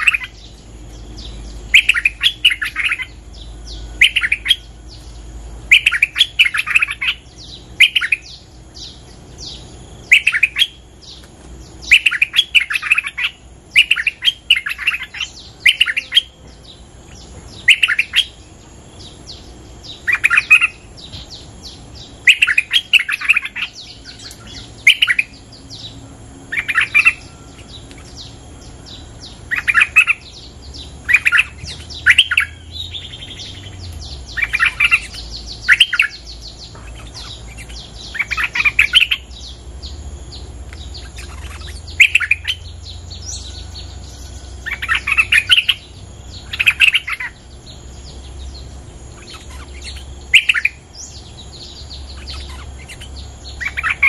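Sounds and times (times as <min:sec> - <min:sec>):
faint high-pitched whine: 0:00.0 - 0:54.0
bulbul singing bubbly phrases: 0:11.7 - 0:25.7.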